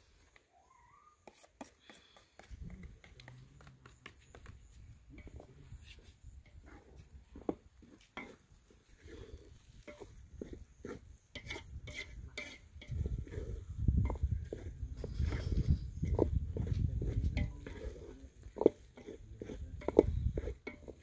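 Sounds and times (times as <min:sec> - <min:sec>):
spoon knocking and scraping pot: 0:06.4 - 0:21.0.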